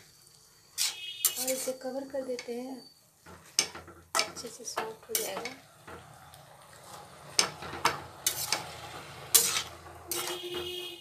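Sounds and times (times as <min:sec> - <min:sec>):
leaves rustling in a pan: 0:00.0 - 0:10.6
metal spatula knocking on pan: 0:03.2 - 0:06.1, 0:07.4 - 0:08.6.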